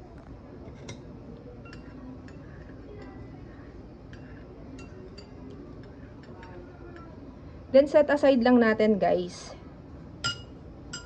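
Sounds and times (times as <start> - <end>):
spoon clinking in ceramic bowl: 1.6 - 3.2, 4.1 - 7.1, 10.2 - 11.0.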